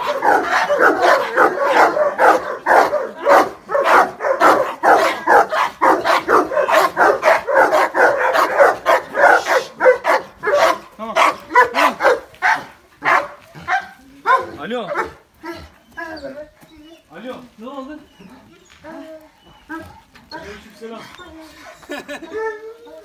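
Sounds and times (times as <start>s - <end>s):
dogs barking: 0.0s - 16.2s.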